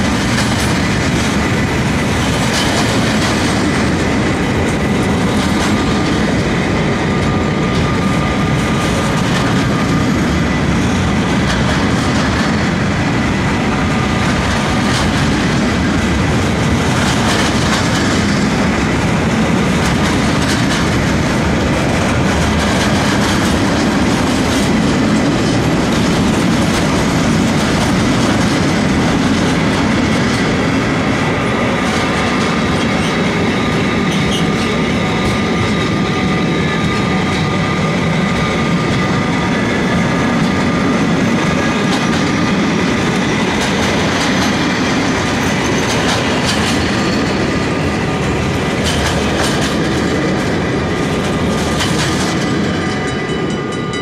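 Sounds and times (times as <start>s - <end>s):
clickety-clack over rail joints: 0.0s - 54.0s
steel wheels rumbling on rail: 0.0s - 54.0s.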